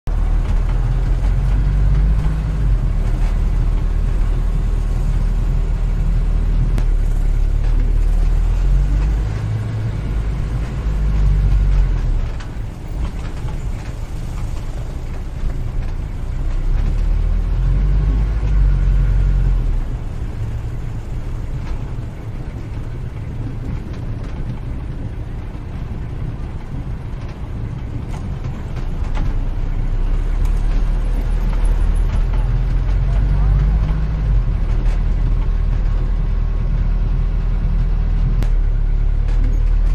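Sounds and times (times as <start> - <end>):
vehicle engine rumble: 0.0 - 39.9.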